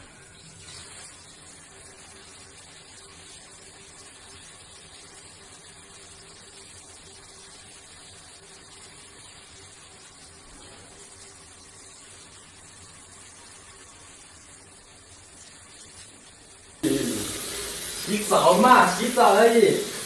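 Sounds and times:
faint steady hiss: 0:00.0 - 0:20.0.

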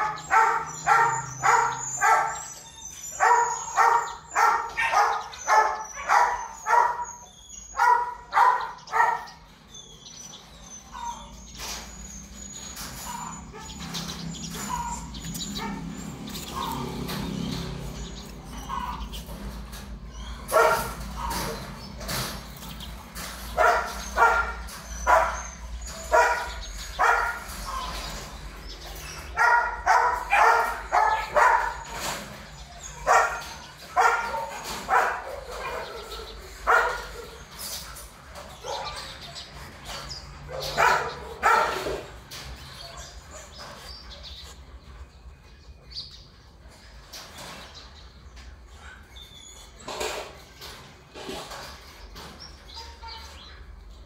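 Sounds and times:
dog barking: 0:00.0 - 0:02.5, 0:03.2 - 0:09.4, 0:20.5 - 0:21.6, 0:23.6 - 0:27.9, 0:29.3 - 0:32.0, 0:33.0 - 0:37.3, 0:38.6 - 0:39.1, 0:40.5 - 0:42.1.

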